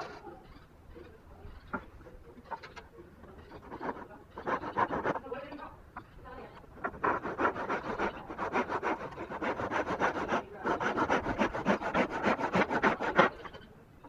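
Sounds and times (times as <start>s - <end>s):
hand saw cutting wood: 3.6s - 5.3s, 6.8s - 13.6s.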